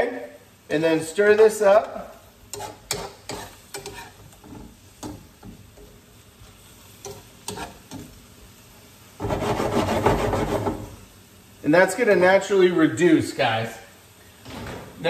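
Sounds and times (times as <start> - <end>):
faint sizzle: 0.0 - 15.0
metal tongs scraping skillet: 2.4 - 8.2.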